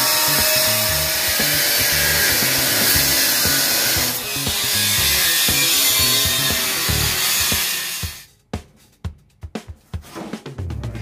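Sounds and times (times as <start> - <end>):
angle grinder cutting steel: 0.0 - 8.3
background music with a beat: 0.0 - 11.0.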